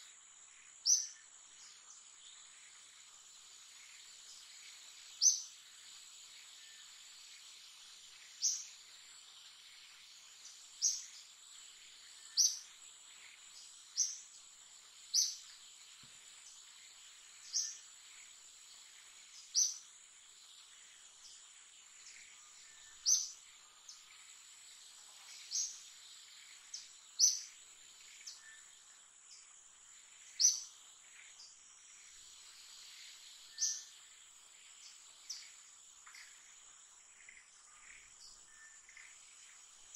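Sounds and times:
bird chirping: 0.0s - 39.9s
high-pitched insect drone: 30.2s - 39.9s.

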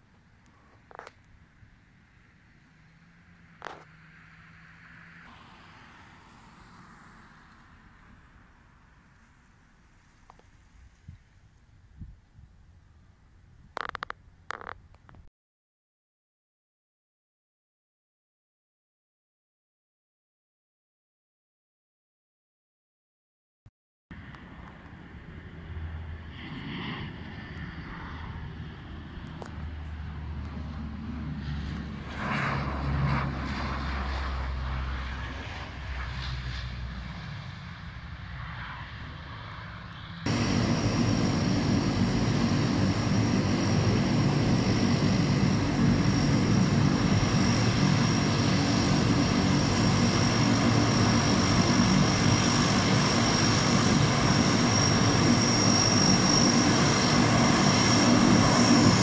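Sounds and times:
turboprop engines droning: 5.2s - 11.0s, 24.1s - 59.0s
wind rumble: 24.1s - 59.0s.

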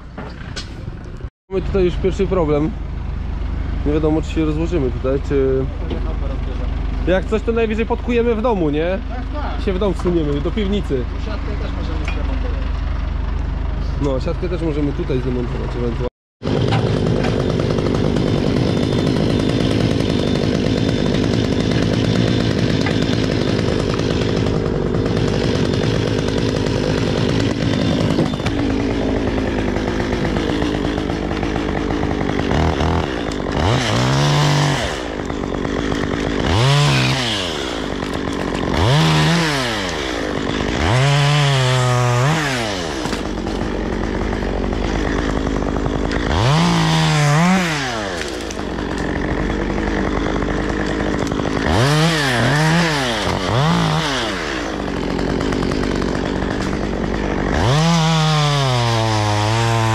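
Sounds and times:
chainsaw revving: 14.4s - 59.9s.

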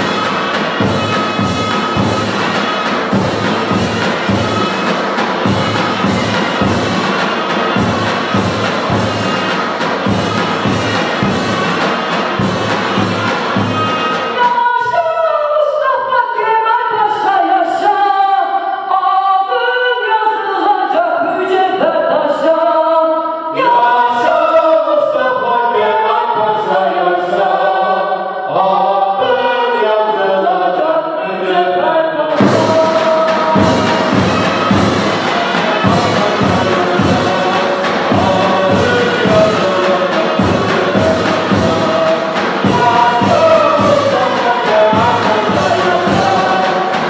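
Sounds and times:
drums: 0.0s - 14.6s, 32.3s - 47.0s
marching band with percussion: 0.0s - 15.0s, 32.3s - 47.0s
woman singing into microphone: 14.3s - 33.8s.

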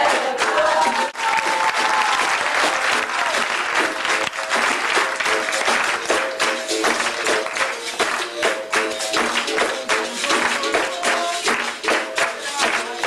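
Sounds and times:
crowd applause: 0.0s - 13.0s
rhythmic hand-clapping: 0.0s - 13.0s
short repeated instrument notes: 3.4s - 13.0s.

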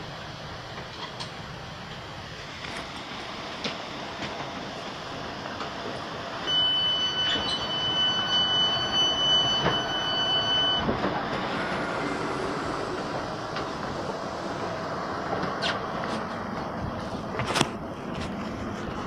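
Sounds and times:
train carriage hum: 0.0s - 19.0s
door warning beep: 6.4s - 13.7s.

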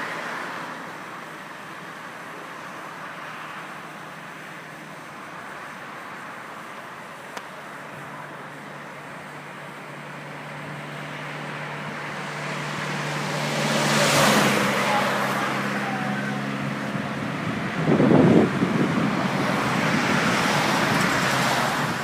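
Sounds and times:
low engine hum: 0.0s - 22.0s
road traffic noise: 0.0s - 22.0s
vehicle passing close: 9.2s - 22.0s.

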